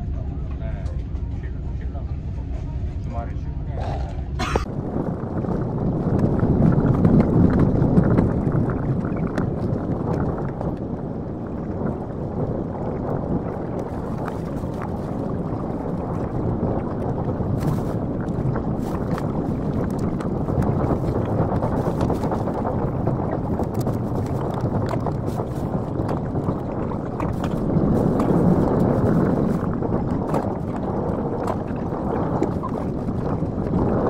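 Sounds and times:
train rumbling from inside: 0.0 - 5.0.

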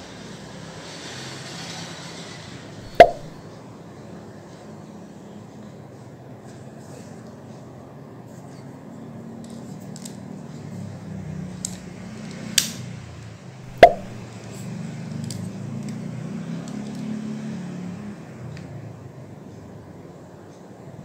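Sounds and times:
sharp knocks: 2.9 - 3.4, 13.7 - 14.2.

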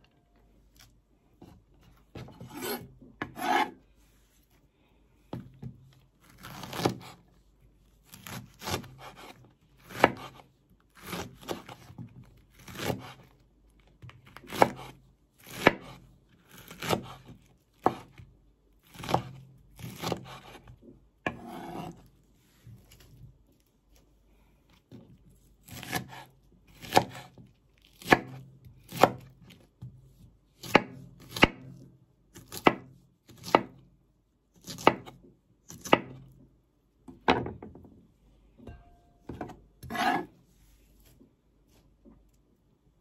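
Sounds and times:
knife slicing on chopping board: 2.2 - 3.8, 21.3 - 22.1, 25.6 - 27.3, 39.8 - 40.4.

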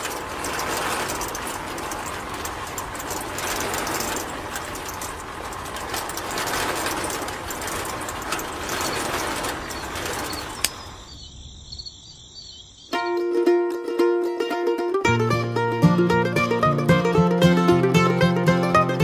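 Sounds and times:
small machine rattling: 0.0 - 11.4.

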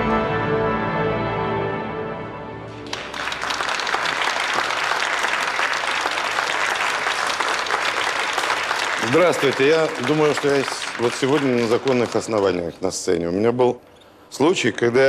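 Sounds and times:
theme tune music: 0.0 - 4.1
studio audience applause: 2.8 - 12.8.

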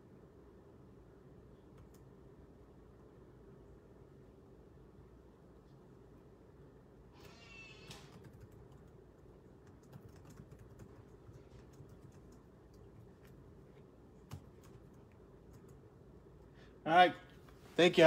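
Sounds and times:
typing on computer keyboard: 7.9 - 13.4, 14.2 - 15.8.

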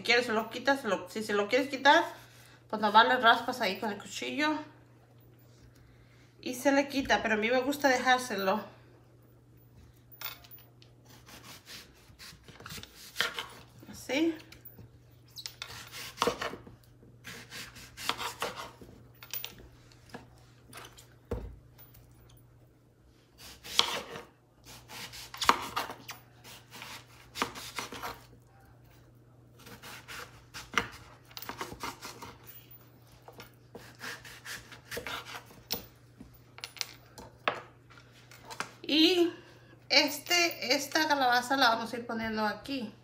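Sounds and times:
knife cutting pumpkin: 11.1 - 13.7, 15.6 - 18.8, 23.4 - 28.3, 29.6 - 32.4, 33.7 - 35.6.

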